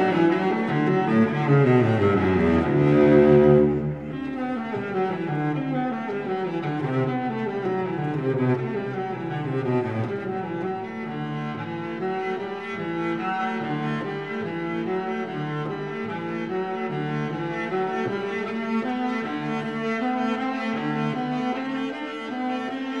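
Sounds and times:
instrumental background music: 0:00.0 - 0:07.0.

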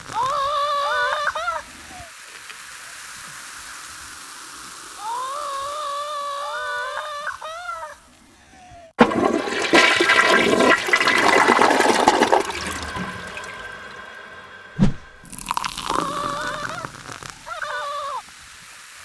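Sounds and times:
soda foam fizzing and spraying: 0:00.0 - 0:07.0, 0:09.0 - 0:19.0
thump: 0:14.8 - 0:15.3.

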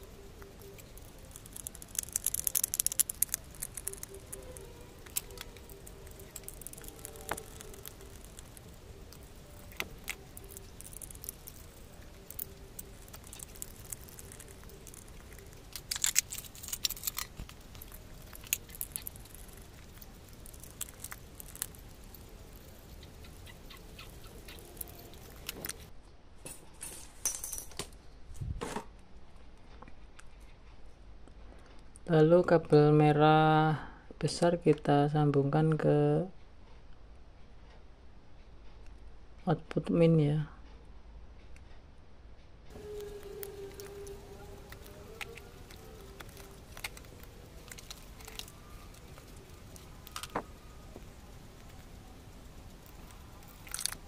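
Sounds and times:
small hardware clicks and rattles: 0:00.1 - 0:22.9.

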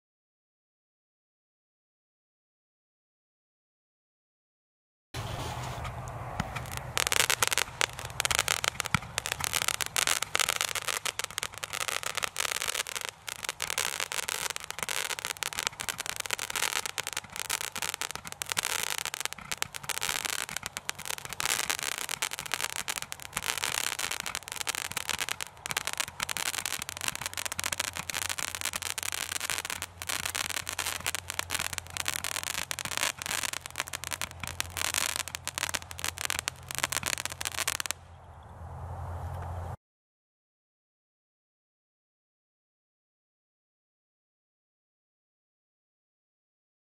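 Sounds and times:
fireworks crackling: 0:05.2 - 0:38.0
roman candle launch pops: 0:05.4 - 0:37.9.

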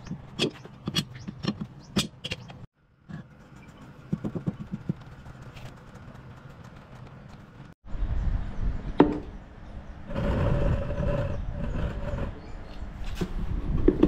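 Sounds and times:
sharp clicks and knocks: 0:00.0 - 0:07.8.

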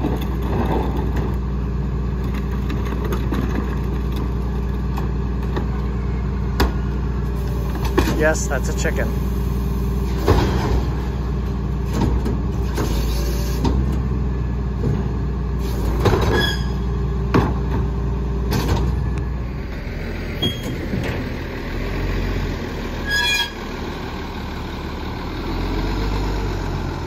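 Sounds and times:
garbage truck idling: 0:00.0 - 0:27.0
metal clangs and bangs: 0:10.1 - 0:11.3.

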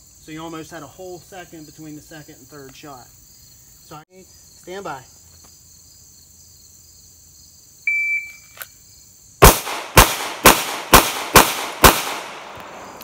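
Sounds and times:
pistol shots: 0:09.4 - 0:13.0.

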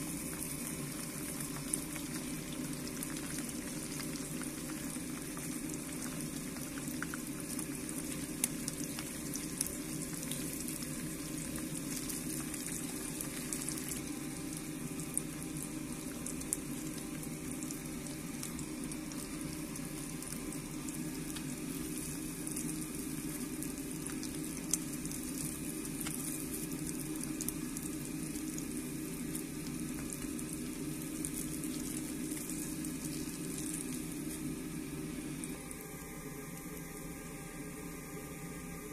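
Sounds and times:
fish sizzling in oil: 0:00.0 - 0:37.3.

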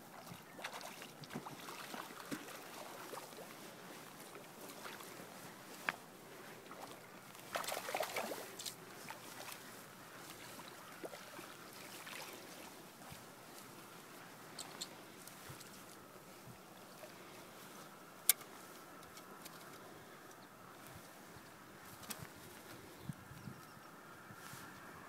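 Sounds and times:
fish splashing in water: 0:00.1 - 0:03.7, 0:06.6 - 0:09.7.

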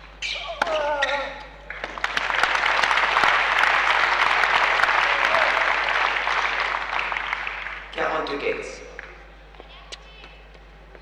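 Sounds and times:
spectators clapping: 0:01.7 - 0:08.4.

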